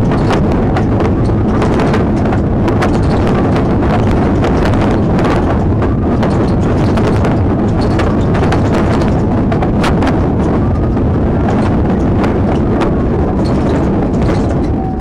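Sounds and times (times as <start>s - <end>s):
car rumbling over rough ground: 0.0s - 15.0s
knocking and rattling: 0.0s - 15.0s.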